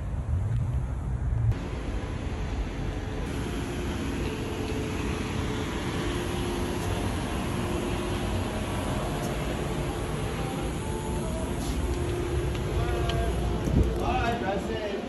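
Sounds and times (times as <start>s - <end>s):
vehicle rumble: 0.0s - 15.0s.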